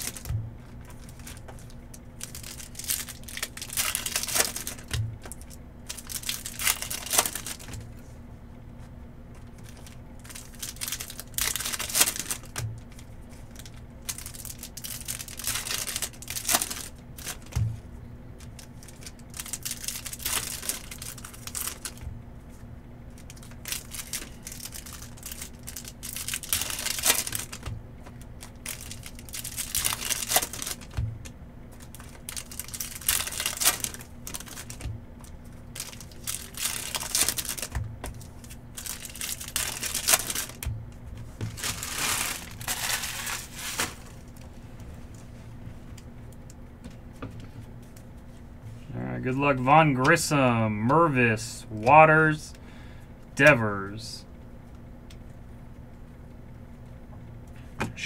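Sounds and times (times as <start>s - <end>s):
foil wrappers tearing and crinkling: 0.0s - 7.8s, 9.4s - 17.6s, 18.4s - 22.0s, 23.1s - 31.0s, 31.8s - 40.7s, 41.4s - 44.4s.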